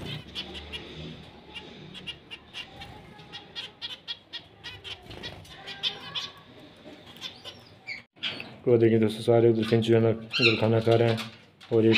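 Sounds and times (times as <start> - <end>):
finches chirping: 0.0 - 8.6.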